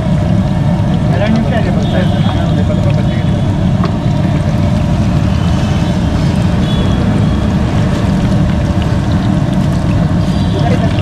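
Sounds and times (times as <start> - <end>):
loud low rumble: 0.0 - 11.0
oil sizzling: 0.0 - 11.0.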